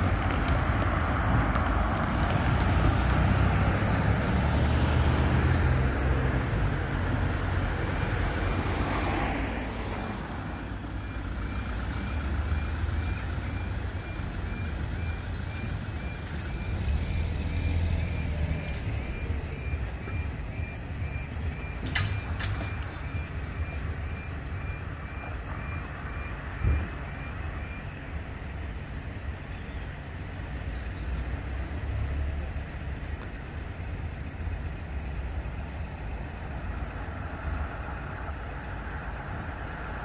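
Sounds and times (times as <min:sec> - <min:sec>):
cars passing: 0:00.0 - 0:40.0
road traffic rumble: 0:00.0 - 0:40.0
crossing alarm beeping: 0:08.3 - 0:29.8.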